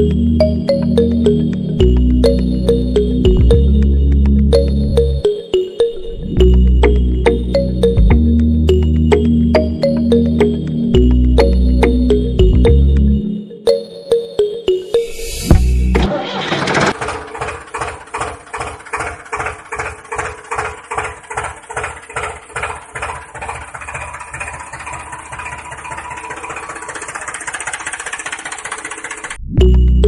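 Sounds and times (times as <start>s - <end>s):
tractor engine chugging: 0.0s - 5.3s, 6.4s - 13.2s, 15.9s - 29.9s.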